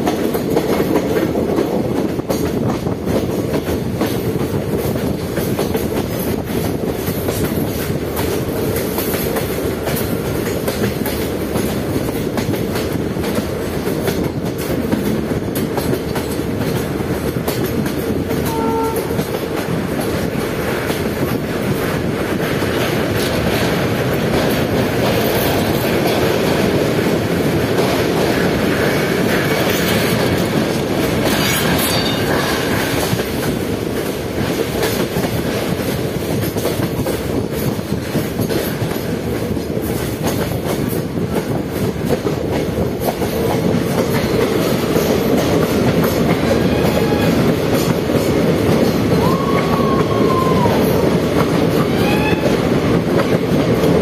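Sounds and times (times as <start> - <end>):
clickety-clack over rail joints: 0.0 - 54.0
train wheels rumbling on rails: 0.0 - 54.0.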